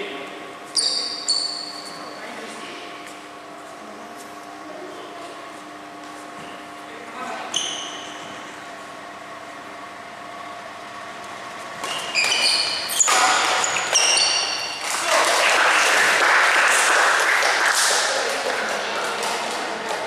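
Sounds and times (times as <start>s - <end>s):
shoes squeaking on court floor: 0.7s - 2.2s, 7.4s - 8.5s, 11.6s - 14.8s
racket hitting shuttlecock: 11.8s - 14.5s.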